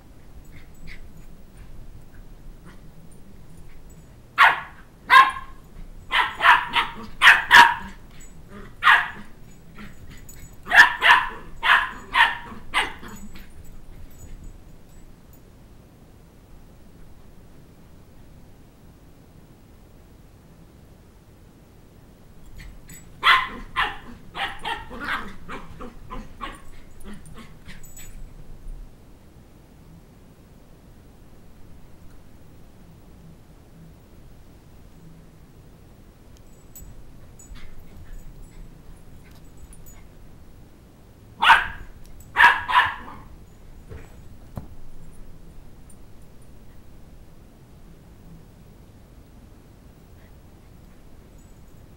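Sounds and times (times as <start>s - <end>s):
puppy barking: 4.4s - 8.0s, 8.6s - 9.9s, 10.6s - 13.3s, 23.2s - 27.8s, 41.4s - 43.3s.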